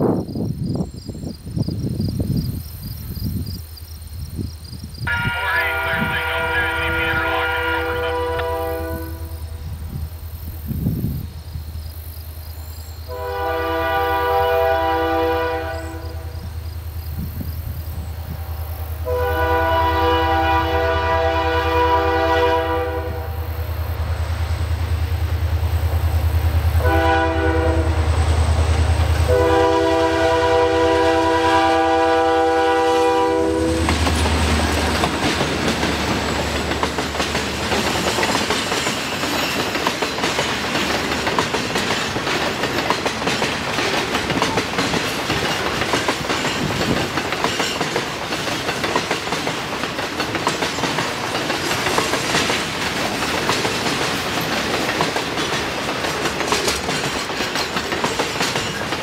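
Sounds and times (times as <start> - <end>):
locomotive horn blasts: 5.1 - 9.6, 13.1 - 16.4, 19.0 - 23.5, 26.8 - 28.1, 29.2 - 33.9.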